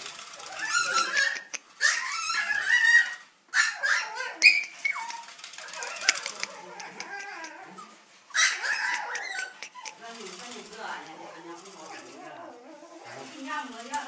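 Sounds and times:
small dog whimpering and yipping: 0.4 - 10.0.

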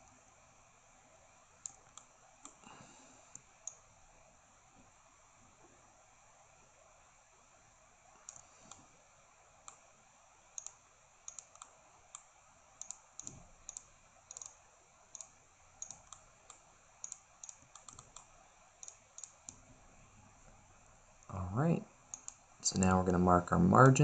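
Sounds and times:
computer mouse clicks: 1.6 - 2.6, 3.3 - 3.9, 8.2 - 8.9, 9.6 - 9.8, 10.5 - 19.6, 22.1 - 22.4.

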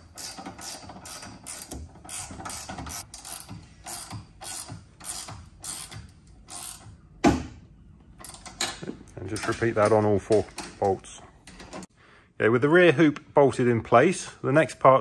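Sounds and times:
ratchet pawl clicking: 0.1 - 6.9.

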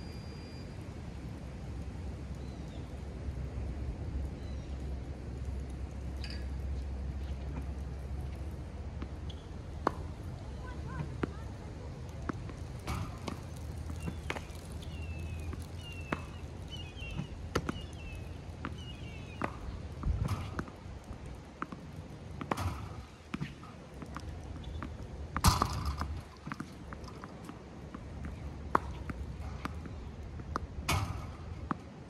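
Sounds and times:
tennis balls bouncing on hard court: 7.2 - 31.9
racket hitting tennis ball: 22.4 - 31.8.

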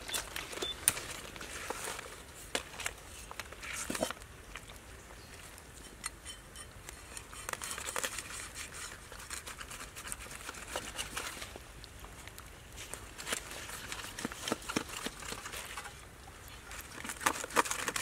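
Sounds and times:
cleaver scraping fish scales: 5.8 - 11.5, 13.2 - 16.0, 16.6 - 18.0.

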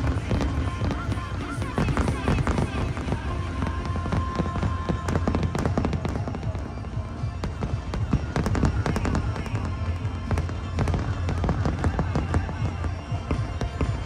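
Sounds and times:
fireworks bangs and crackles: 0.0 - 14.0
music with low beat: 0.0 - 14.0.

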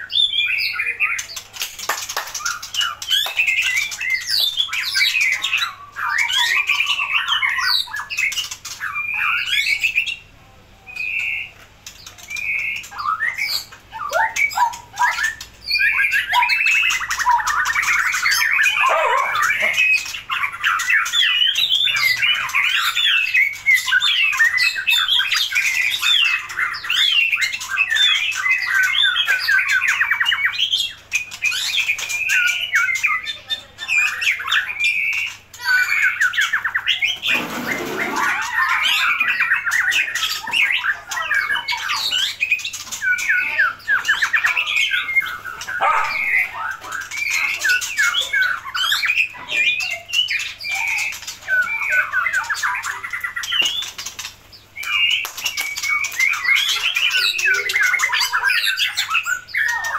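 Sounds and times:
bird whistling and trilling: 2.3 - 10.2, 12.2 - 59.9.

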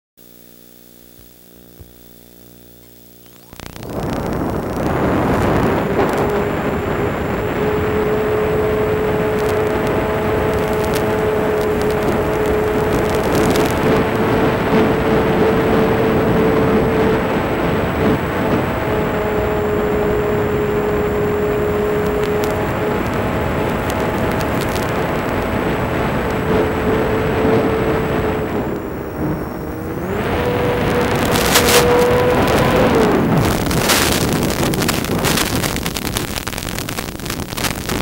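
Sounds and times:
model airplane motor running: 2.8 - 36.2.

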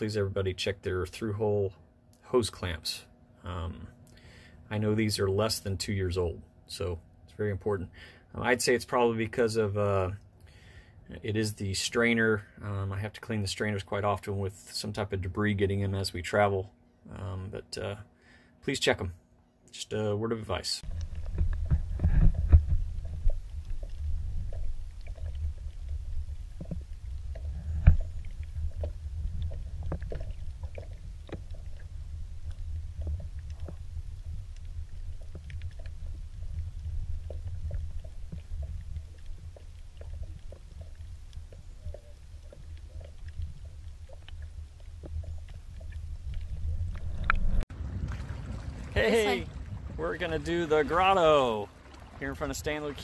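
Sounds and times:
faint clicks and crackles: 20.8 - 47.6
muffled underwater rumble: 20.8 - 53.0.

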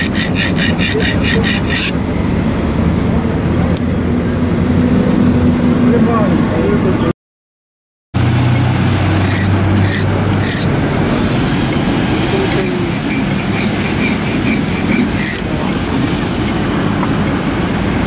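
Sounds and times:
knife being sharpened: 0.0 - 1.9, 9.2 - 10.7, 12.5 - 15.4
traffic noise: 0.0 - 7.2, 8.2 - 18.0.

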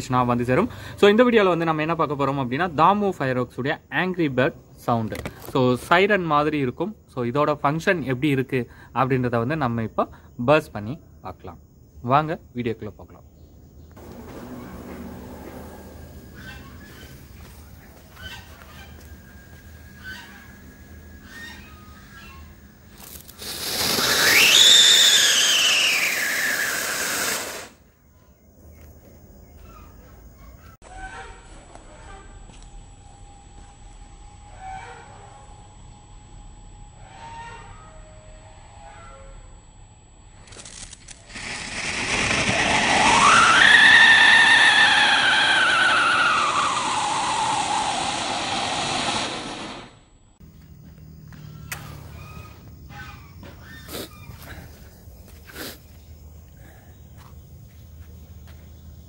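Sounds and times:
fuse sputtering: 14.0 - 27.8, 40.4 - 56.9
hissing spray of sparks: 22.9 - 27.8, 41.2 - 44.2, 46.2 - 49.9
firework whistle: 23.0 - 27.8, 41.3 - 50.0.

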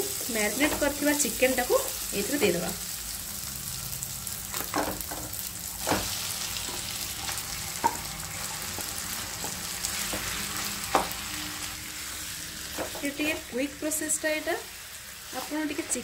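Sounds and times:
chicken sizzling in a pan: 0.0 - 16.0
utensils knocking on pan: 7.8 - 8.1.

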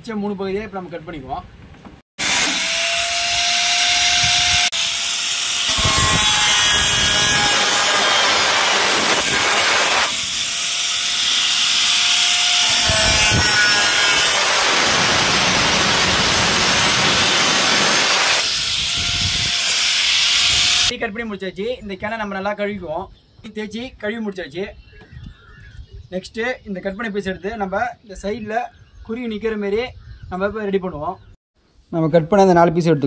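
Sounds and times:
angle grinder cutting metal: 2.2 - 20.9.

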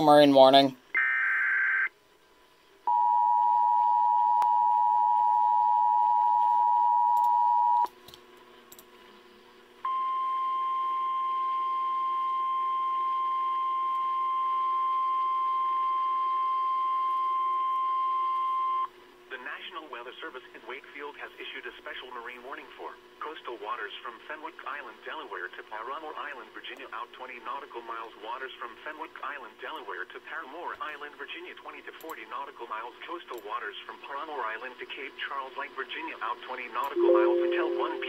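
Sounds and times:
single-pitch alarm tone: 37.0 - 38.0
two-tone attention signal: 37.0 - 38.0.

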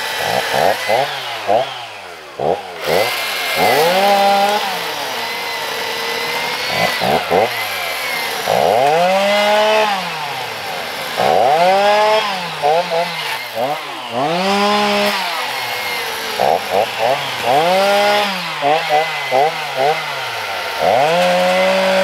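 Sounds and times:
chainsaw revving: 0.0 - 22.0.

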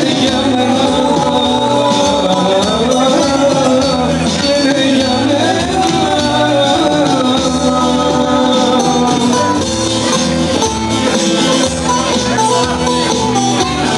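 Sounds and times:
acoustic guitar: 0.0 - 13.9
long-necked plucked lute: 8.5 - 13.9.

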